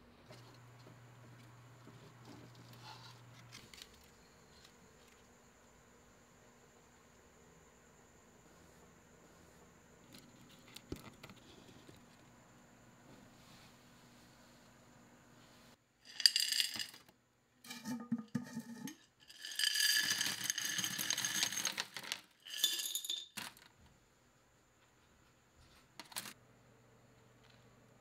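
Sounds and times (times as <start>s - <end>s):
contents rattling on plastic: 19.3s - 23.7s.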